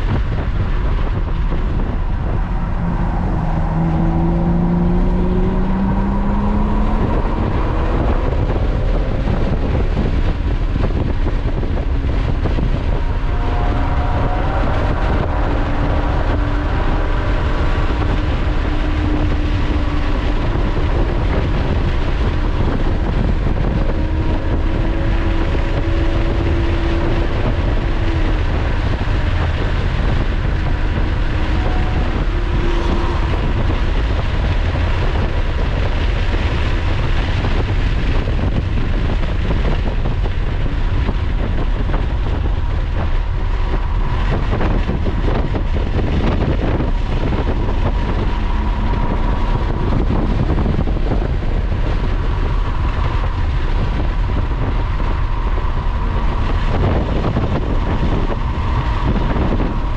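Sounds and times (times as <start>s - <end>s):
car engine at speed: 0.0s - 59.9s
tyre and wind noise: 0.0s - 59.9s.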